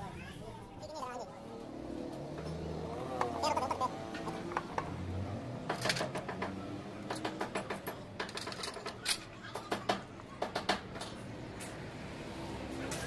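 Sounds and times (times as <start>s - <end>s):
metallic clicks and knocks: 5.6s - 11.8s.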